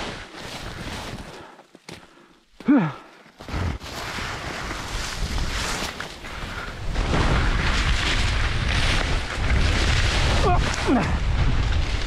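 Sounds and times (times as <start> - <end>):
skis scraping over snow: 3.4 - 12.0
wind rumble on microphone: 4.7 - 12.0.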